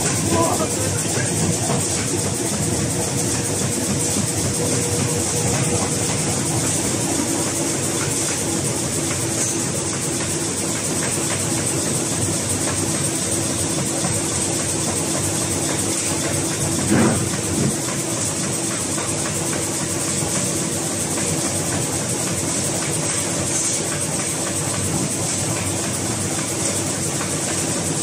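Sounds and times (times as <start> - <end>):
machine clattering and humming: 0.0 - 28.0
loud machine knocks: 16.8 - 17.8.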